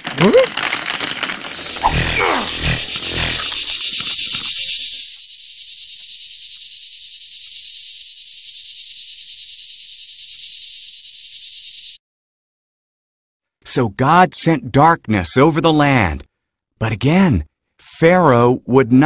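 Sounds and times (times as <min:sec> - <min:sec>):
insects chirring: 0:00.1 - 0:12.0.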